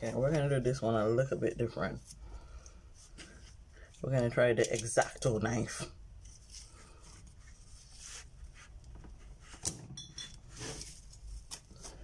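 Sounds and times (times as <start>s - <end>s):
paper rustling and scraping: 6.2s - 9.8s, 10.4s - 12.0s.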